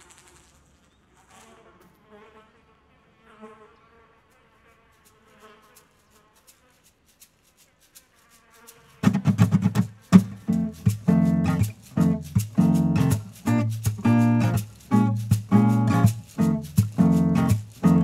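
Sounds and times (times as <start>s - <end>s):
strummed acoustic guitar: 9.0s - 18.0s.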